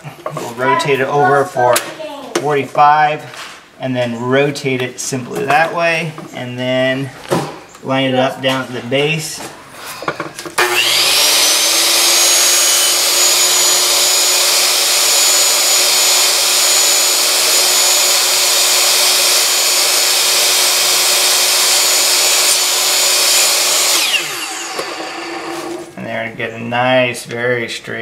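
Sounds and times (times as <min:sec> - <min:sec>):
miter saw cutting wood: 0:10.6 - 0:25.9.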